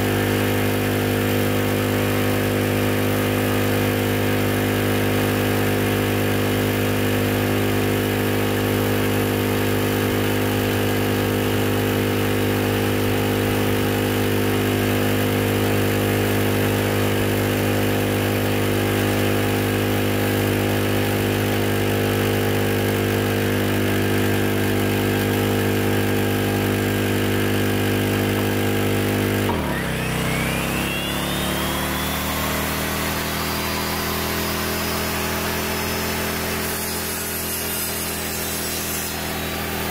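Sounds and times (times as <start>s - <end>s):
electric miter saw motor whine: 0.0s - 39.9s
portable generator engine running: 6.2s - 36.4s.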